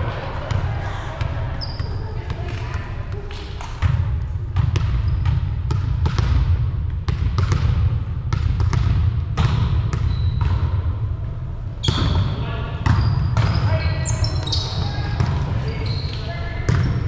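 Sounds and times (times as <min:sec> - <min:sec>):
balls bouncing on hardwood floor: 0:01.6 - 0:10.8
volleyballs being struck: 0:02.4 - 0:10.9.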